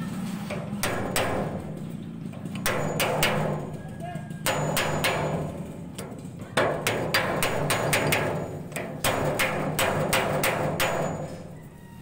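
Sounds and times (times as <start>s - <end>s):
hammer blows on metal: 2.6s - 11.7s.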